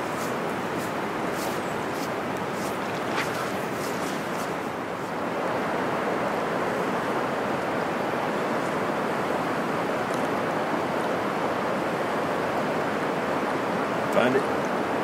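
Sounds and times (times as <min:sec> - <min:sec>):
water rushing over rocks: 0:00.0 - 0:06.3.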